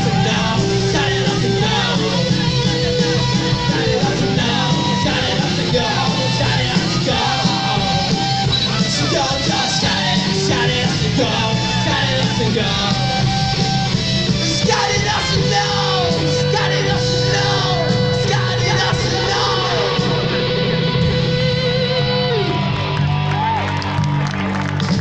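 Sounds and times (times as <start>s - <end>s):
shouted vocals: 0.0s - 13.6s, 14.3s - 24.2s
distorted electric guitars: 0.0s - 25.0s
drums: 0.0s - 25.0s.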